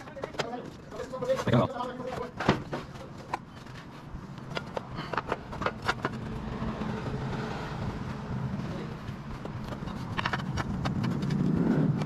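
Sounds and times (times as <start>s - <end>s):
car passing: 4.8s - 12.0s.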